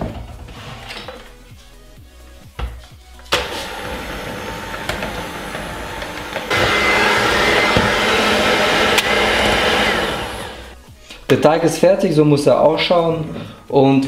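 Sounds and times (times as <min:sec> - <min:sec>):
electric hand mixer running: 0:03.3 - 0:10.8.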